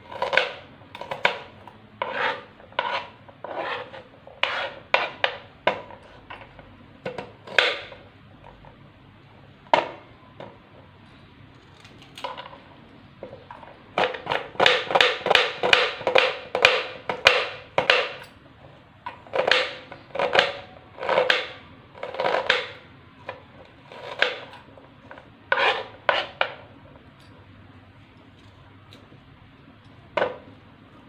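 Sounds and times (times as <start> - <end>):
knife chopping onion on board: 0.0 - 6.2, 7.0 - 8.0, 14.0 - 18.3, 19.1 - 26.7.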